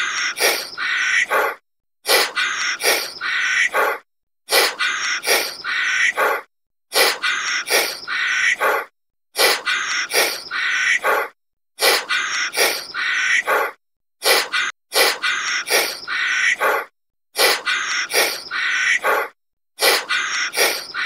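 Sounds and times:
monkey chattering calls: 14.3 - 21.0.

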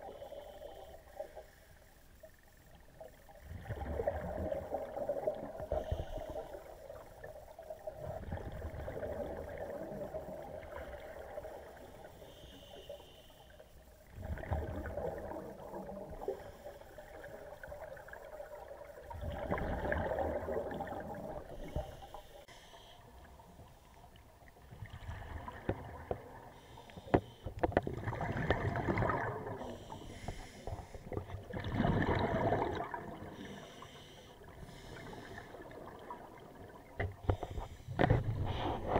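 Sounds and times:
faint regulator hiss: 0.0 - 3.4, 4.9 - 8.3, 8.9 - 19.2, 20.6 - 27.8, 29.4 - 31.5, 32.8 - 38.9
exhaled bubbles underwater: 2.8 - 12.2, 14.0 - 22.2, 24.3 - 26.7, 27.6 - 30.0, 30.8 - 33.8, 34.4 - 37.4.

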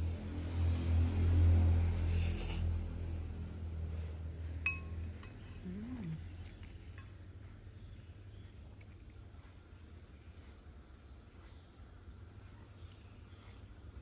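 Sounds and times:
utensil clinking ceramic bowl: 4.6 - 5.6, 6.6 - 7.3.

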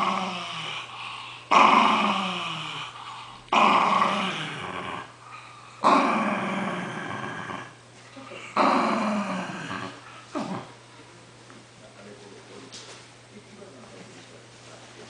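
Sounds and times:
small dog growling: 0.0 - 10.8.

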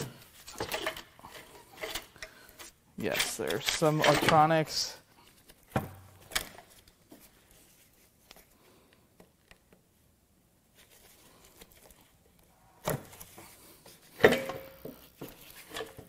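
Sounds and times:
hands rustling and clicking on wiring: 0.0 - 9.9, 10.7 - 16.0
metallic clunk with a ring: 14.2 - 14.8.

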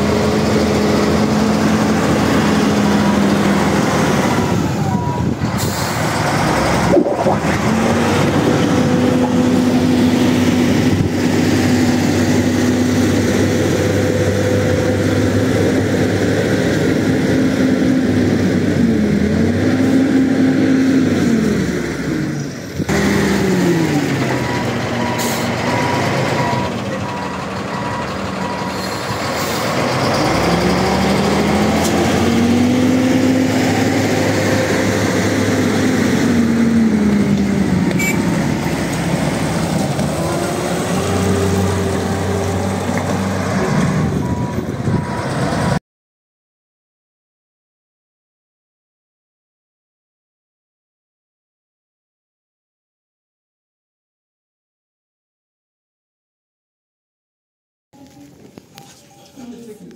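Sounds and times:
wheel loader engine revving: 0.0 - 45.8
high beeping: 6.9 - 7.6.

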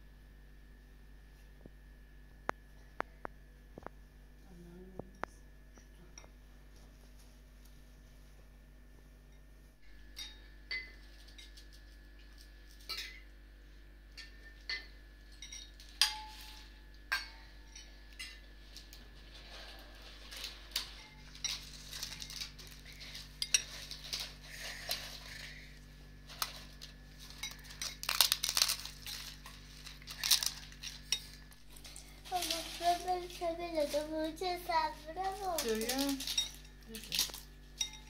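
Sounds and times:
metal spoons clinking on bowls: 10.0 - 11.6, 12.8 - 13.3, 14.1 - 18.5, 20.4 - 25.6, 26.4 - 32.8, 35.2 - 38.0
flatbread being torn: 27.6 - 31.8.

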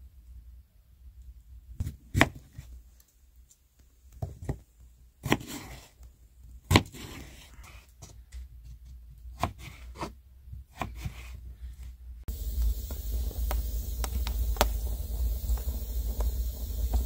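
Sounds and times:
knife chopping on wooden board: 5.2 - 5.8, 6.7 - 7.3, 9.4 - 10.1.

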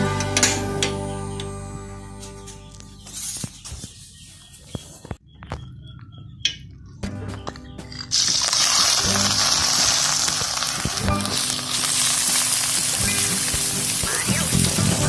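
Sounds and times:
egg mixture sizzling in hot oil: 8.1 - 15.0.

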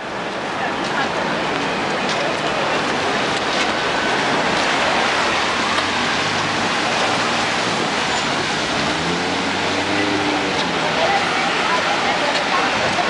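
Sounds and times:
rain falling on street: 0.0 - 13.0
traffic on wet road: 0.0 - 13.0
vehicle engine hum passing: 3.6 - 13.0.

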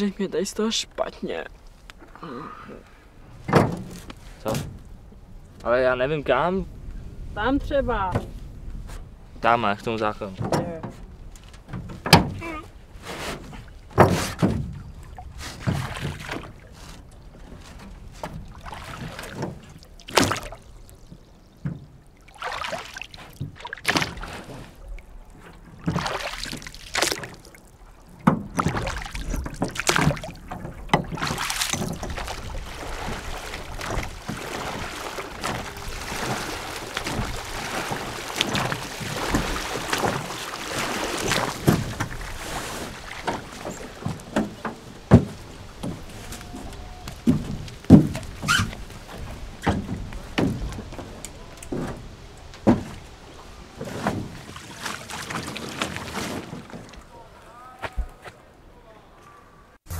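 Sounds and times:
rushing water and wind: 0.0 - 57.6
oars knocking against metal hull: 3.3 - 4.9, 10.0 - 12.6, 13.5 - 22.0, 25.3 - 53.1
oar strokes splashing: 10.2 - 57.5.

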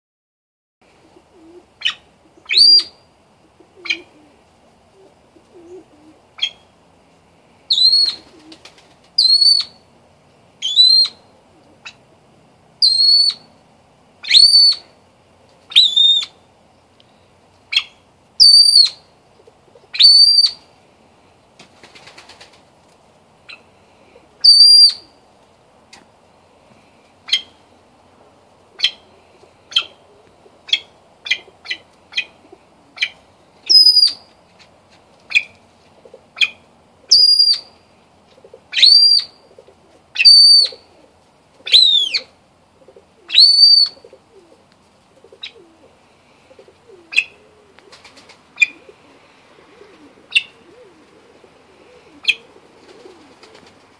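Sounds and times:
pheasant whistled peeps: 1.8 - 3.0, 7.7 - 8.4, 9.2 - 9.8, 10.6 - 11.2, 12.8 - 13.5, 14.2 - 14.9, 15.7 - 16.4, 17.7 - 19.0, 19.9 - 20.6, 24.4 - 25.1, 27.3 - 27.6, 28.8 - 29.1, 29.7 - 30.0, 30.7 - 32.4, 33.0 - 34.3, 36.4 - 37.7, 38.7 - 39.5, 40.2 - 40.9, 41.6 - 42.3, 43.3 - 44.2, 46.9 - 48.0, 48.6 - 48.9, 49.7 - 51.0, 52.0 - 53.6.

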